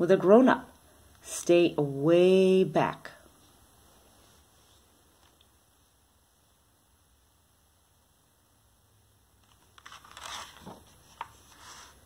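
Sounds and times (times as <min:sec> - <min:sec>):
faint room hum: 0:00.0 - 0:12.0
book page turning: 0:09.4 - 0:12.0.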